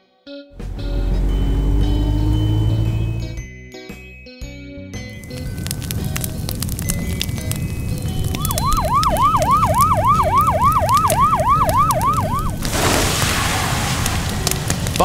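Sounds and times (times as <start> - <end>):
fire truck siren yelping: 0.6 - 3.4, 5.4 - 14.6
water spraying from hose: 5.2 - 15.0.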